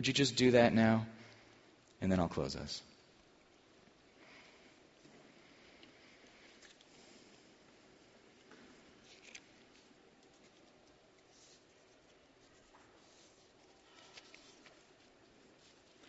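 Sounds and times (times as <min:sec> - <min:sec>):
faint rustles: 0:03.4 - 0:16.0.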